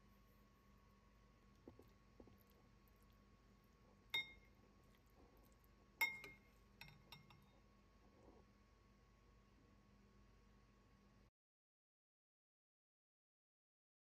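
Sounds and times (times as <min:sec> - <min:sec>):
metal spoon clinking ceramic bowl: 0:04.1 - 0:04.5, 0:06.0 - 0:07.6.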